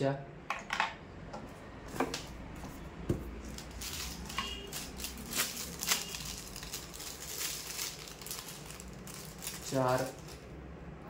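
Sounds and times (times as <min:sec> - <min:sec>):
plastic bag crinkling: 0:03.3 - 0:10.5.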